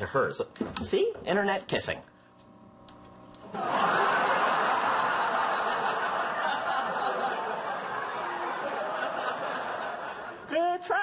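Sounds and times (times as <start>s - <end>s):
studio audience laughing: 3.4s - 10.5s.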